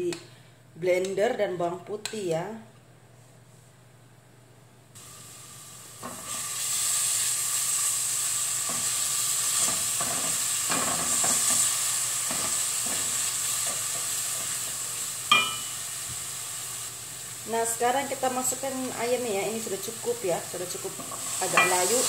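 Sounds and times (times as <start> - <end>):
onion sizzling in hot oil: 5.0 - 22.0.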